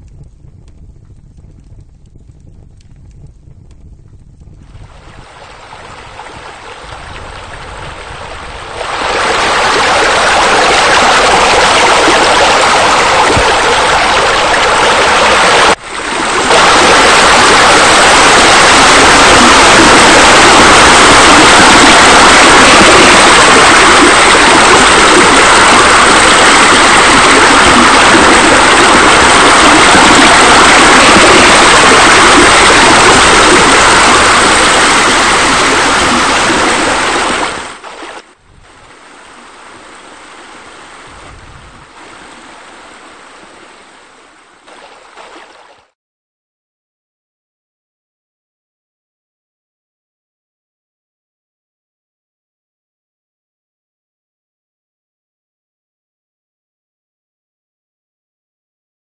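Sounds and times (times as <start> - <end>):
fountain water splashing: 4.7 - 41.2, 41.8 - 45.9.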